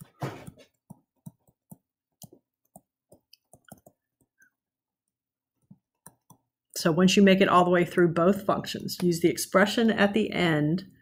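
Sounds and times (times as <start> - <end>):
stylus tapping touchscreen: 0.0 - 6.7.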